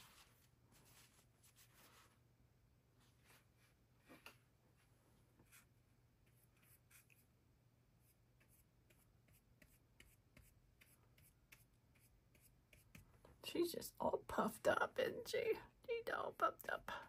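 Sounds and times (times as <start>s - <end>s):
paintbrush scratching on panel: 5.4s - 7.3s, 8.0s - 13.1s.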